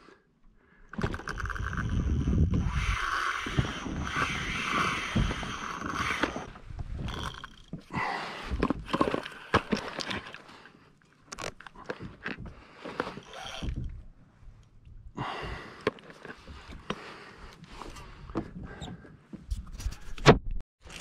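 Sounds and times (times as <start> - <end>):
fishing rod scraping and knocking: 1.0 - 7.9, 8.6 - 10.5, 11.3 - 14.0.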